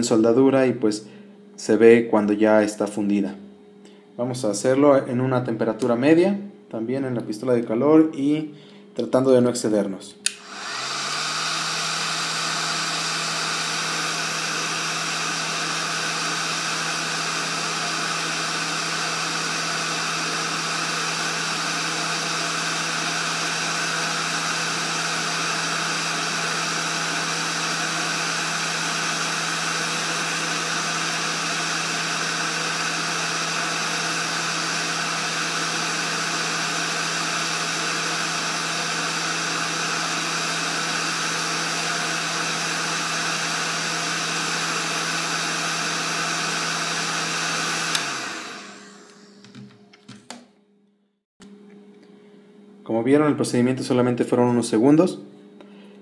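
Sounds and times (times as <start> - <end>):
heat gun blowing air: 10.2 - 49.6.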